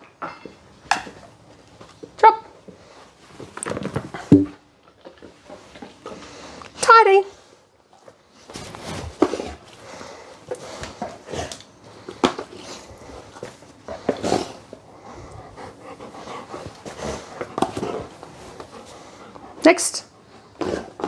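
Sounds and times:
dog panting: 0:12.7 - 0:21.0.

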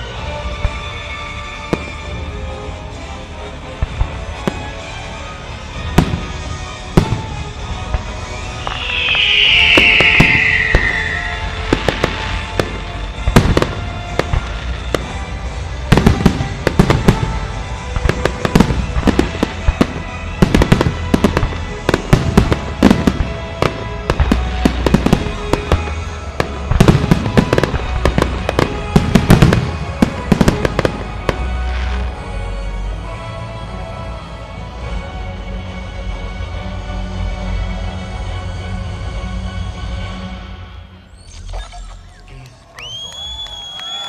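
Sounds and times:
descending firework whistle: 0:05.9 - 0:32.1, 0:41.0 - 0:44.0.

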